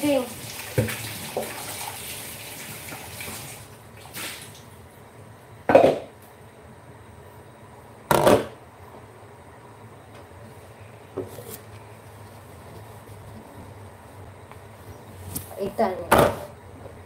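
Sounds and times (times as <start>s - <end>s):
tap water running: 0.0s - 4.7s.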